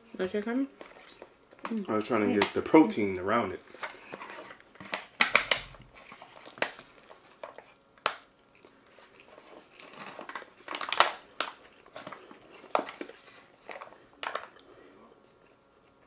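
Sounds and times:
chewing and mouth noises: 6.9 - 10.6.

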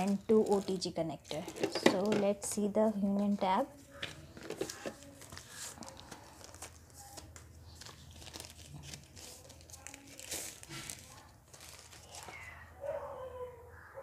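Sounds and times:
packaging sheet crinkling: 0.0 - 1.8, 4.2 - 12.6.

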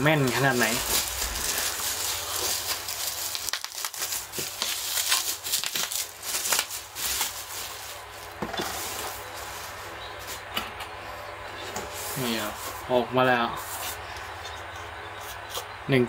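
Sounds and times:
bubble wrap crinkling: 0.0 - 10.5.

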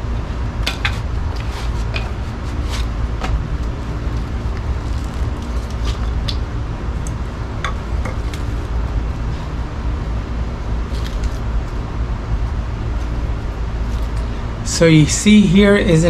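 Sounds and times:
steady low rumble: 0.0 - 16.0
knife scraping wood: 0.8 - 3.0, 4.0 - 6.3, 10.9 - 11.4.

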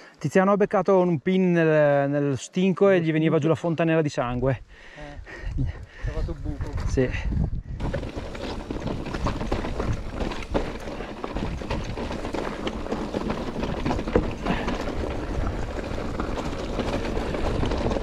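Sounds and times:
bike rattling and knocking: 7.8 - 18.0
tyres crunching on stones: 7.8 - 18.0.

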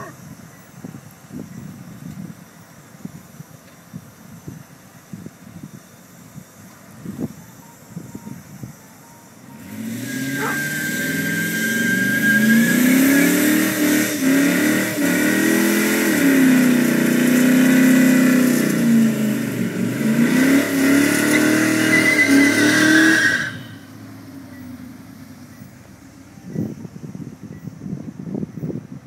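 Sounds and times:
tyres squealing: 9.6 - 19.1, 19.8 - 24.8
car engine revving hard: 9.6 - 24.4.

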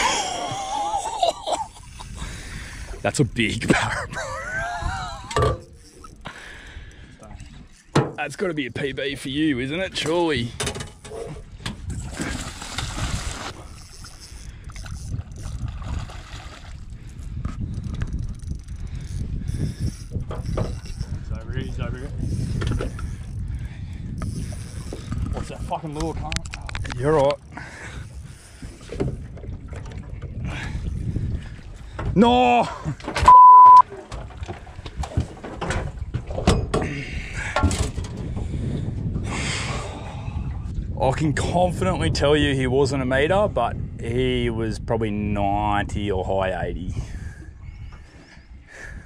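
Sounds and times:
wind rumble on microphone: 0.0 - 49.0
fish thrashing and splashing: 11.9 - 16.9.

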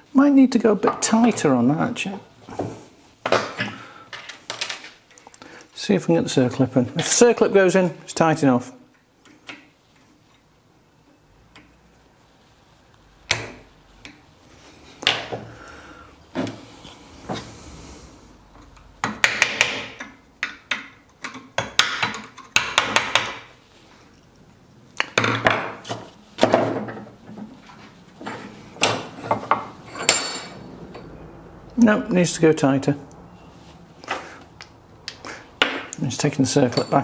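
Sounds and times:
metal clanks: 28.2 - 31.1.

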